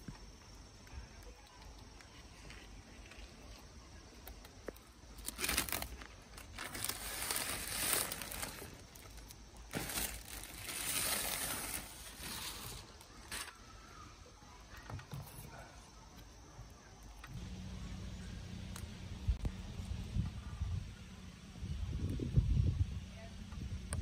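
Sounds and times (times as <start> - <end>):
plastic film crinkling: 4.2 - 13.9.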